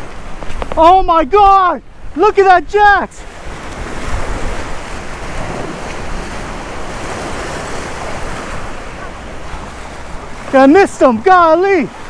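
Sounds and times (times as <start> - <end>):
surf washing against rocks: 0.0 - 12.0
wind buffeting microphone: 0.0 - 12.0.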